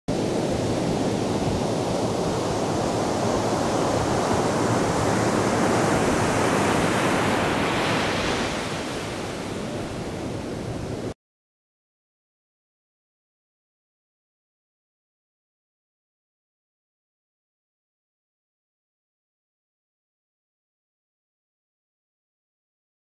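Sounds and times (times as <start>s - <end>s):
ocean surf breaking: 0.1s - 11.2s.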